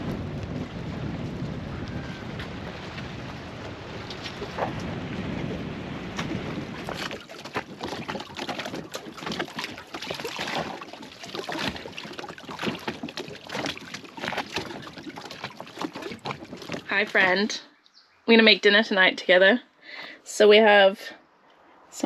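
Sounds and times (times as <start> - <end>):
water splashing against dinghy hull: 0.0 - 17.6.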